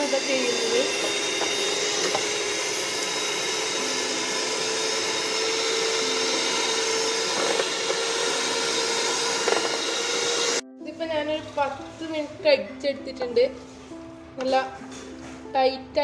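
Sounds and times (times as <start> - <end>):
electric mixer whine: 0.0 - 10.6.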